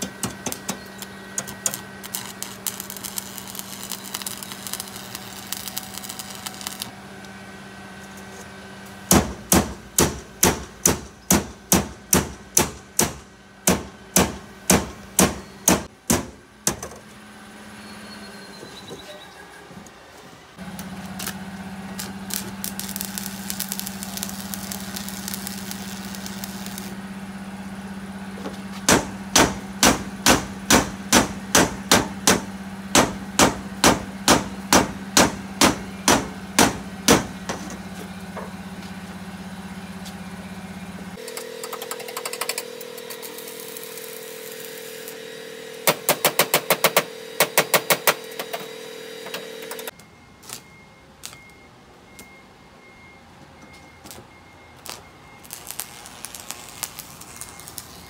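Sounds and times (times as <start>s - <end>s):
steady machine hum: 0.0s - 16.6s, 20.6s - 49.9s.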